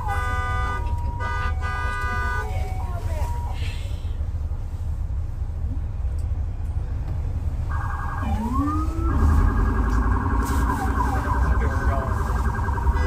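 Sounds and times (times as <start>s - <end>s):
emergency vehicle siren: 0.0s - 4.0s, 7.7s - 13.0s
city street traffic rumble: 0.0s - 13.0s.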